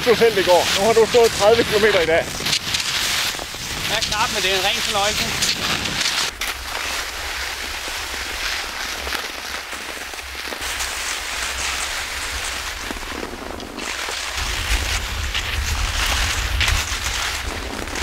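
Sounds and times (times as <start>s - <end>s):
skis sliding over crusted snow: 0.0s - 18.0s
wind rumble on microphone: 0.1s - 6.3s, 10.9s - 18.0s.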